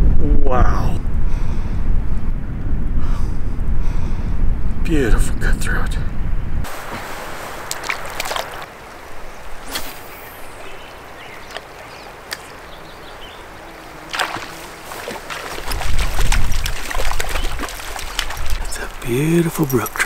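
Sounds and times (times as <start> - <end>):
fish splashing at surface: 6.7 - 8.7, 14.1 - 19.0
creek water flowing: 6.7 - 20.0.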